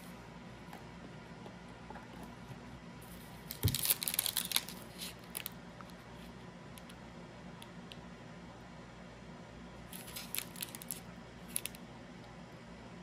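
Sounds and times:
foil wrapper crinkling and tearing: 3.5s - 5.6s, 9.9s - 11.8s.

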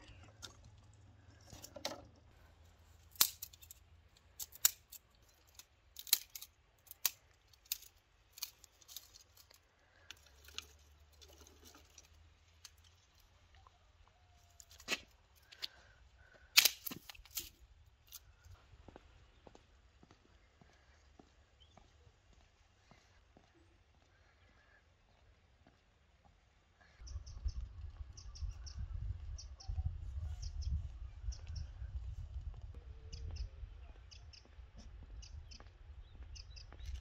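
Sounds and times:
dry twigs snapping: 3.1s - 3.8s, 4.4s - 12.8s, 16.6s - 18.2s.

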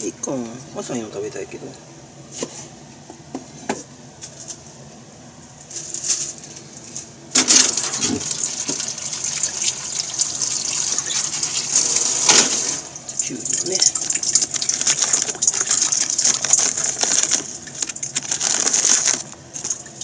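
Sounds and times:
water running into sink: 7.4s - 20.0s.

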